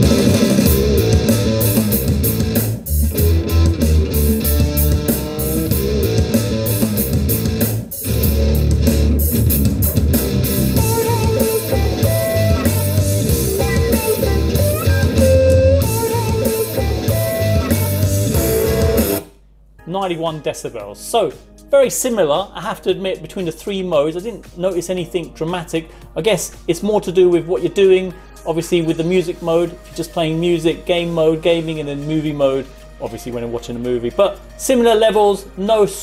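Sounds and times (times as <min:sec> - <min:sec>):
guitar music with heavy bass: 0:00.0 - 0:19.3.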